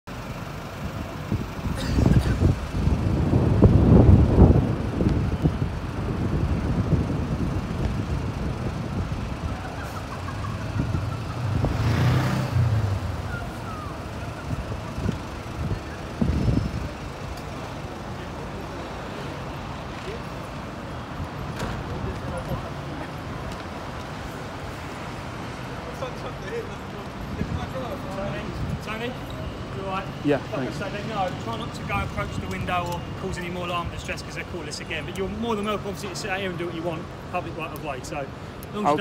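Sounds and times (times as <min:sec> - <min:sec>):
traffic rumble: 0:00.1 - 0:39.0
vehicle passing: 0:06.2 - 0:20.5.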